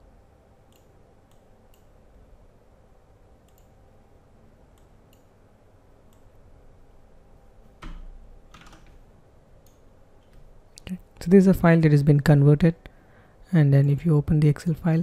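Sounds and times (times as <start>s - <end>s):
low steady hum: 0.0s - 15.0s
faint computer mouse clicks: 0.7s - 1.9s, 3.4s - 3.8s.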